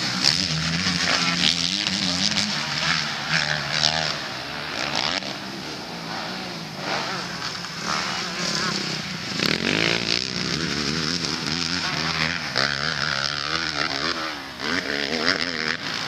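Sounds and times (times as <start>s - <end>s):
motocross bike engines revving: 0.0s - 16.0s
spectators' voices: 2.0s - 10.0s.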